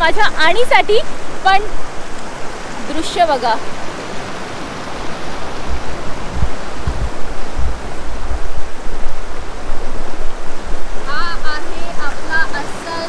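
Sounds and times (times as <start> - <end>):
river rushing over rocks: 0.0 - 13.0
low rumbling thumps: 5.7 - 11.0.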